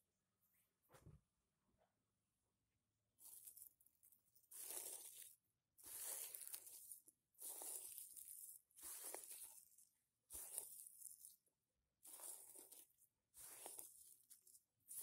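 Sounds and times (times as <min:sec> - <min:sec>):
dry seed heads crackling: 0:03.2 - 0:03.8, 0:04.5 - 0:11.4, 0:12.1 - 0:15.0.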